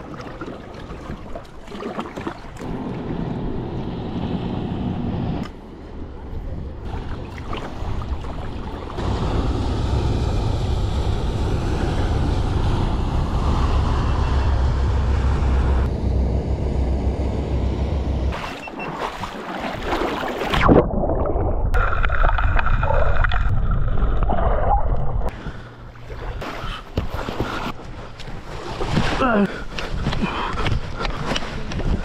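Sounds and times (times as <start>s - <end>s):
rushing water: 0.0s - 3.2s, 6.8s - 14.3s, 18.3s - 23.6s
water splashing: 0.0s - 3.3s, 6.8s - 12.8s, 18.3s - 25.3s
boat engine rumbling: 0.0s - 32.0s
wind noise: 29.7s - 32.0s.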